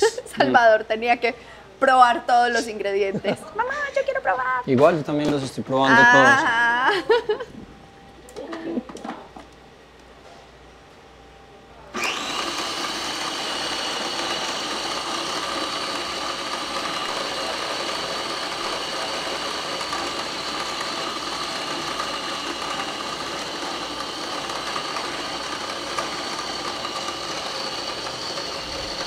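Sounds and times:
blender motor whining: 11.9 - 29.0.

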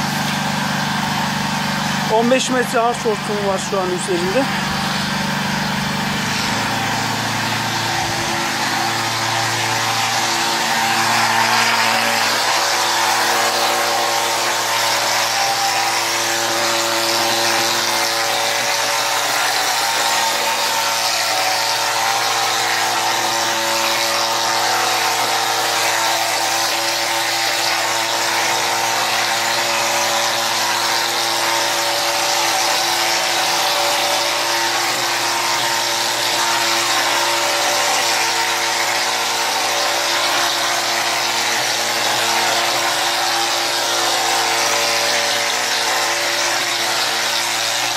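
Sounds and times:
machine motor and pump hum: 0.0 - 47.9.

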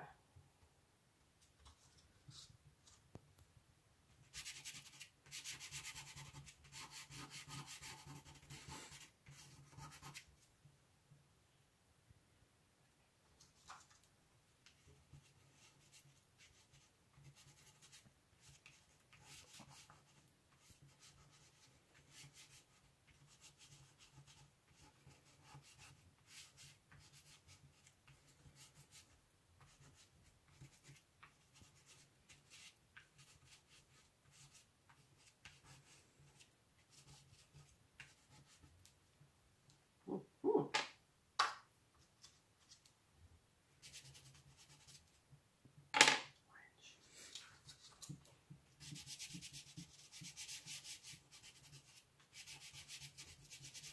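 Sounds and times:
chalk pastel scratching on paper: 4.2 - 10.3, 14.7 - 38.8, 43.8 - 45.2, 47.1 - 53.9.

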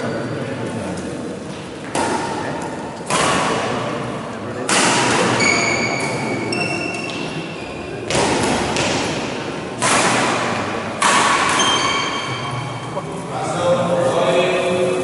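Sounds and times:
shoe squeaks: 0.0 - 0.5, 5.4 - 8.0, 11.6 - 12.8
racket hitting shuttlecock: 1.5 - 3.8, 4.6 - 12.4.

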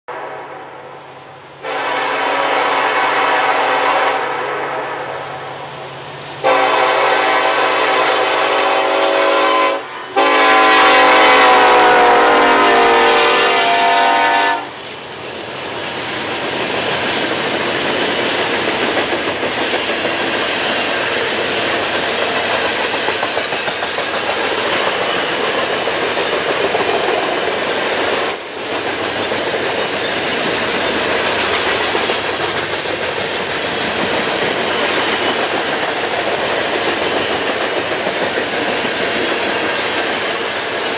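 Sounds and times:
locomotive horn blasts: 1.6 - 4.8, 6.4 - 14.8
rail cars clattering on rails: 13.6 - 40.9.

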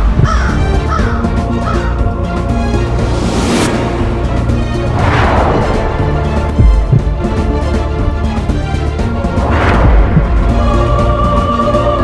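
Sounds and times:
dramatic soundtrack music: 0.0 - 12.0
whoosh: 2.8 - 7.5.

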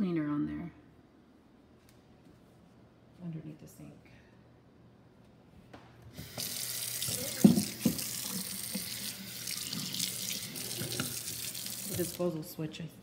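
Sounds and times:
faucet water splashing into sink: 6.2 - 12.2.

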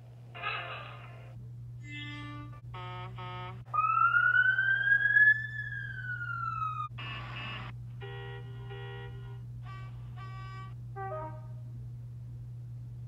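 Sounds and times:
horn toots: 2.0 - 3.7, 7.0 - 11.6
siren wail: 3.7 - 6.9.

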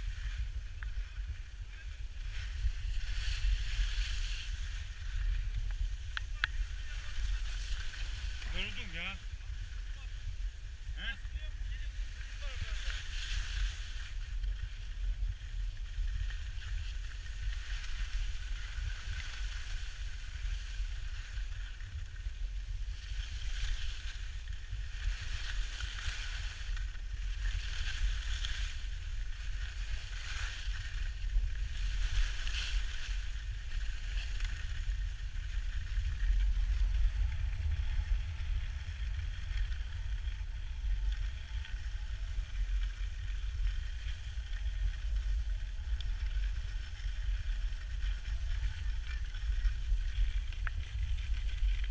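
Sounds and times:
skis scraping over snow: 0.0 - 51.9
wind buffeting microphone: 0.0 - 51.9.

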